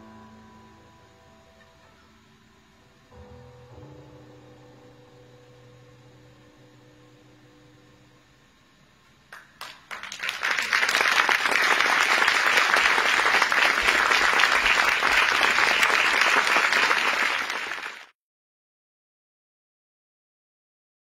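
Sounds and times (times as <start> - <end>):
room hum: 0.0 - 18.1
audience applause: 9.3 - 18.1.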